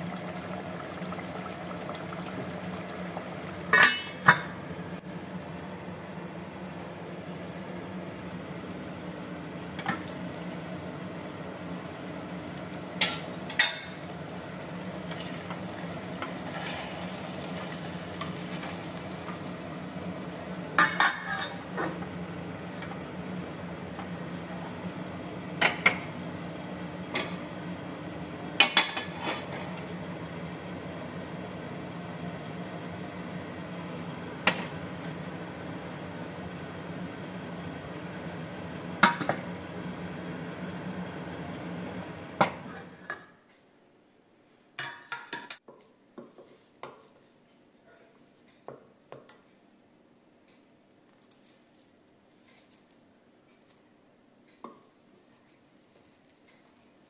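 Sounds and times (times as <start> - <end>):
spatula stirring rice in a pot: 45.7 - 48.7.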